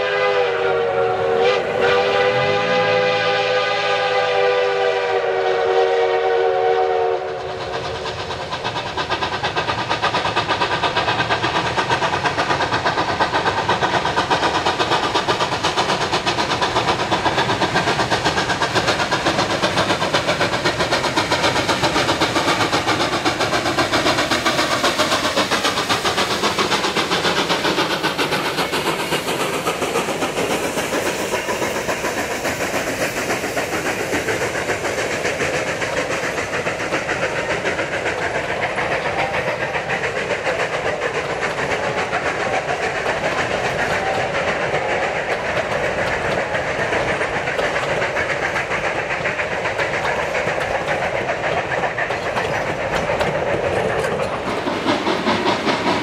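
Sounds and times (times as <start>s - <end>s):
steam locomotive whistle: 0.0s - 7.6s
coaches rolling on rails: 0.0s - 56.0s
steam locomotive exhaust chuffs: 0.0s - 56.0s.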